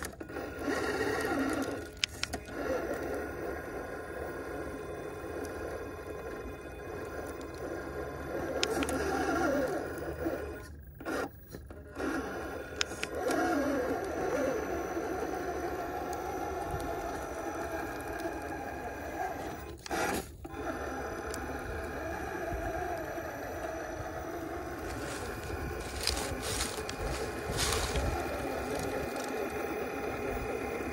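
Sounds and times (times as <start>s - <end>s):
rc car motor whining: 0.0s - 30.9s
tyres scraping on stone: 24.4s - 29.7s.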